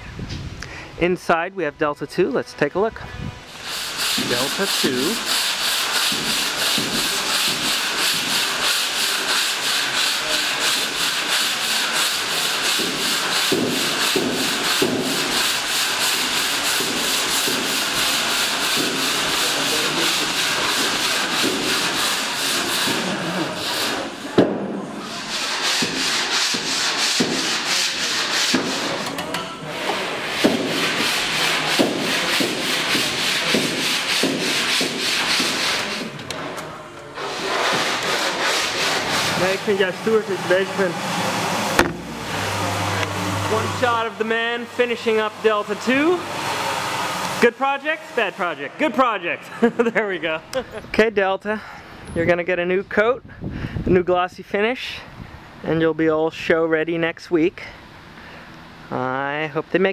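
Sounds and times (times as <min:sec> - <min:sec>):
hand sanding metal hull: 0:03.4 - 0:36.6, 0:37.2 - 0:50.4
sharp knock: 0:41.8 - 0:42.1.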